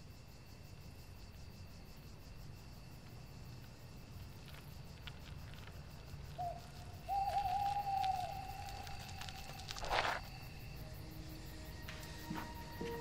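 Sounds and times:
crickets chirping: 0.0 - 13.0
owl hooting: 6.4 - 9.9.

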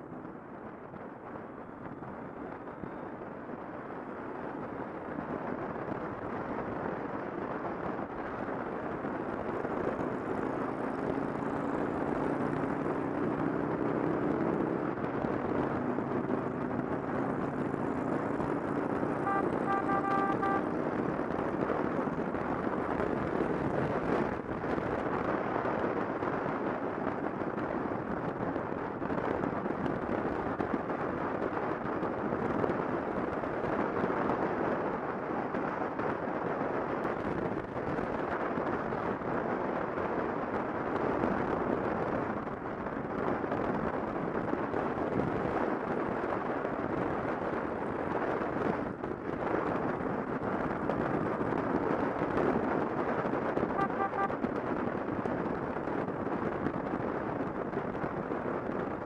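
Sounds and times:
road noise: 0.0 - 59.0
wind rush: 1.9 - 59.0
motorcycle engine: 9.9 - 21.6.

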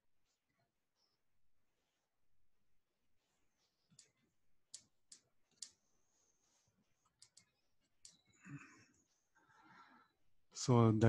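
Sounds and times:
stylus tapping tablet: 7.0 - 8.3.

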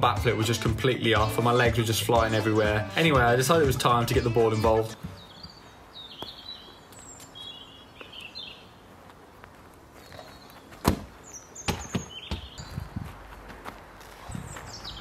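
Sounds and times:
birds chirping: 0.0 - 15.0
footsteps on grass: 8.0 - 15.0
football kicked thud: 10.8 - 12.6.

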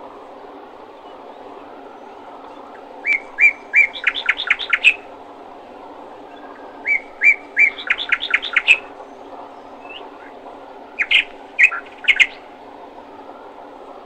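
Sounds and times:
songbird singing: 0.0 - 13.9
low background noise: 0.0 - 14.0.

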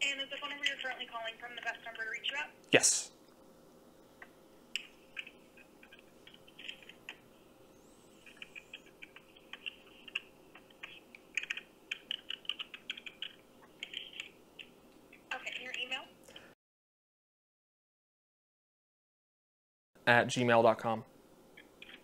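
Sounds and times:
faint keyboard typing: 0.0 - 2.4, 4.2 - 7.2, 8.2 - 16.5, 21.5 - 22.0
thin steady hum: 0.0 - 16.6.

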